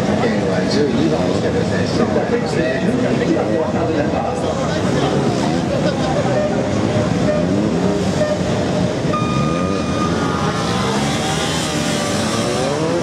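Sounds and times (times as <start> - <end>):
motorcycle engine revving: 5.4 - 13.0.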